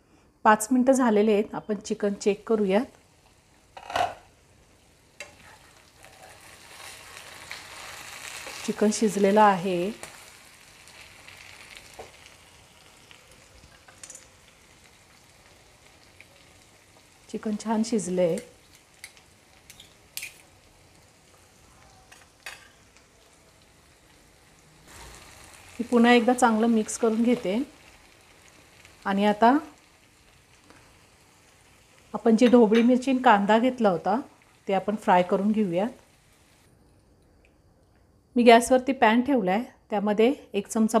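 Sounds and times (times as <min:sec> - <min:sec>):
chicken sizzling in a pan: 0:02.2 - 0:36.7
pan lid clatter: 0:03.8 - 0:04.3.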